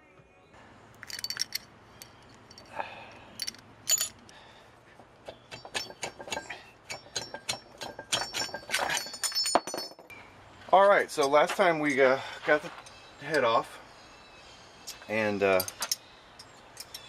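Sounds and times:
metallic clinks and knocks: 1.0 - 2.7, 3.4 - 4.3, 5.3 - 10.2, 15.5 - 17.0.

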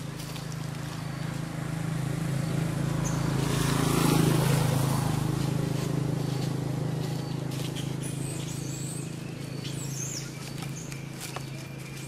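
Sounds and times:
vehicle engine passing: 0.0 - 12.0.

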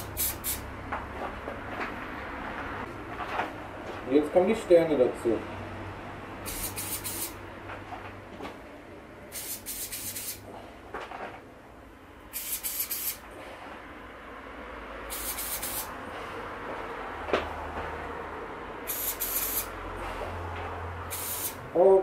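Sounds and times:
spray-paint can hissing: 0.0 - 0.6, 6.4 - 7.4, 9.3 - 10.4, 12.3 - 13.2, 15.1 - 15.9, 18.9 - 19.7, 21.1 - 21.6.

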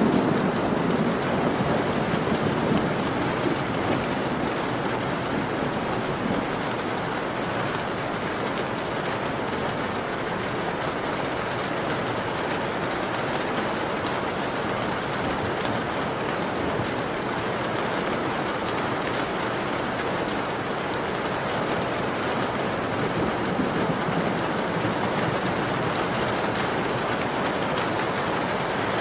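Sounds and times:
rumble of thunder: 0.0 - 6.6, 22.9 - 26.1
steady rain falling: 0.0 - 29.0.

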